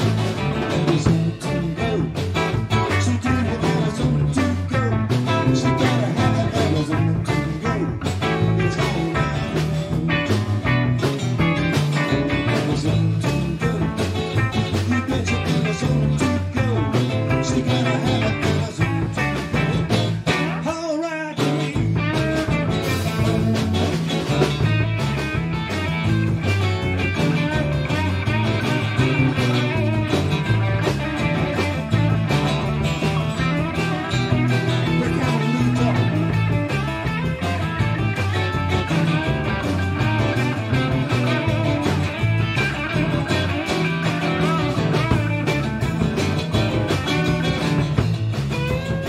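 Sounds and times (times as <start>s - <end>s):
drum kit: 0.0s - 49.0s
electric bass: 0.0s - 49.0s
electric guitars: 0.0s - 49.0s.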